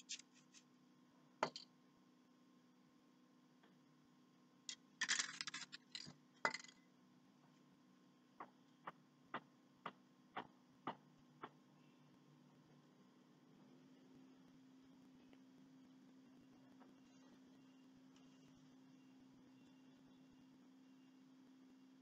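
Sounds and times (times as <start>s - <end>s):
hard objects clinking: 5.0s - 6.8s.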